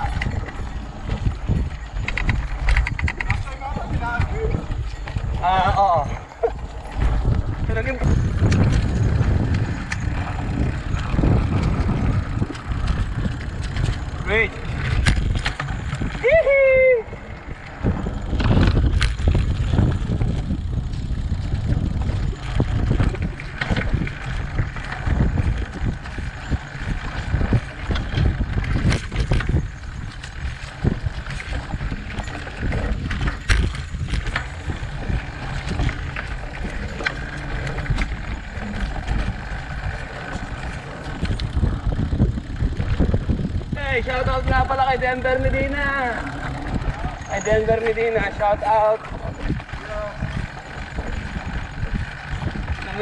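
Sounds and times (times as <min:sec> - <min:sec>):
tyre noise on dirt: 0:00.0 - 0:44.5
bike knocking and rattling: 0:00.0 - 0:53.0
wind on microphone: 0:00.0 - 0:53.0.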